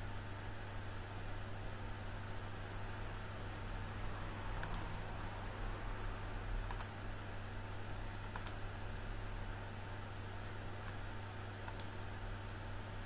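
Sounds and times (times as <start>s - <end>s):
low hum and hiss: 0.0s - 13.0s
computer mouse clicking: 4.6s - 4.8s, 6.6s - 7.0s, 8.3s - 8.6s, 11.6s - 12.0s.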